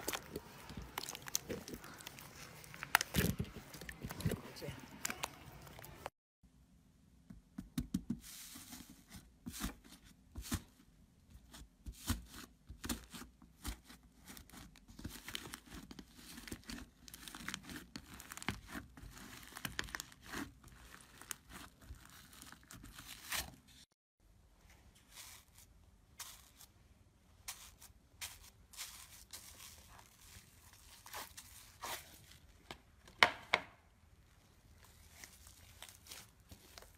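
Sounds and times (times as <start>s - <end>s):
slime crackling and popping: 0.0s - 4.4s, 15.0s - 23.4s.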